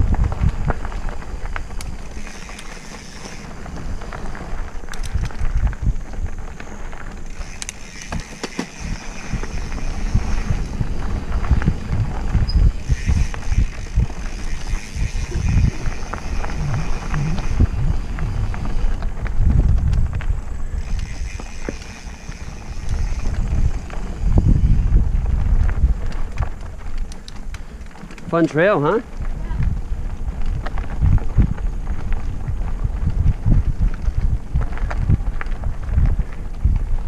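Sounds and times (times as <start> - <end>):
bike tyres rattling over ground: 0.0 - 37.0
wind buffeting microphone: 0.0 - 37.0
high steady buzz: 12.7 - 18.8.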